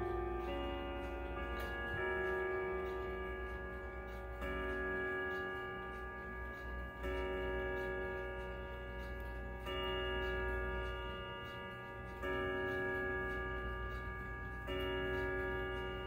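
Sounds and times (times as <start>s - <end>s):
clock ticking: 0.0s - 16.0s
wall clock chiming: 0.0s - 16.0s.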